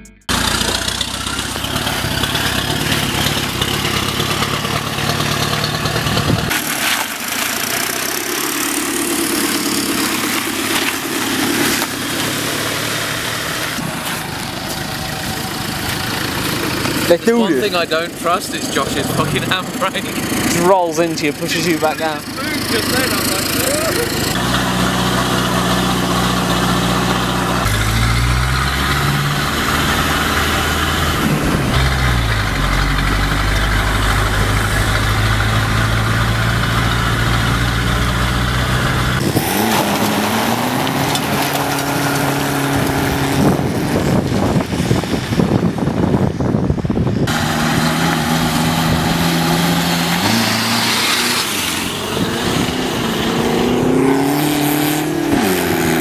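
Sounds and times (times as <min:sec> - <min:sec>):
car engines accelerating: 0:00.2 - 0:56.0.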